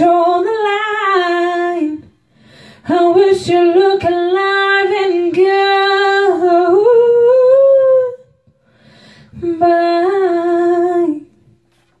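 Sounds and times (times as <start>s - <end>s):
short breath: 2.3s - 2.9s, 8.6s - 9.4s.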